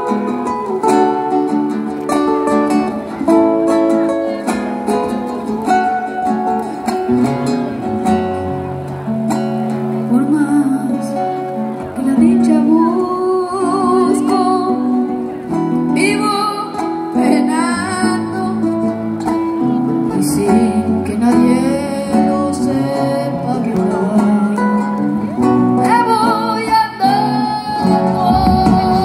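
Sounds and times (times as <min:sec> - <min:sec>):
acoustic guitars strumming: 0:00.0 - 0:29.0
boy singing: 0:25.8 - 0:29.0.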